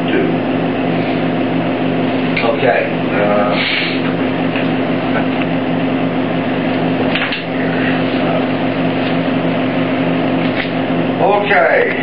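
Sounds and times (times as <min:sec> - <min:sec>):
machinery hum: 0:00.0 - 0:12.0
rush of room air: 0:03.4 - 0:04.2.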